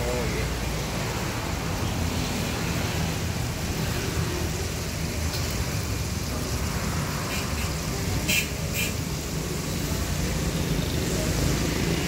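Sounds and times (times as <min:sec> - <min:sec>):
hot oil sizzling in a wok: 0:00.0 - 0:12.0.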